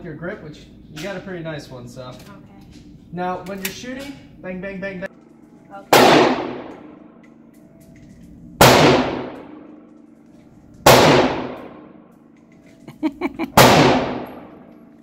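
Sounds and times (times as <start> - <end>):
pistol shots echoing indoors: 5.2 - 12.4, 13.6 - 15.0.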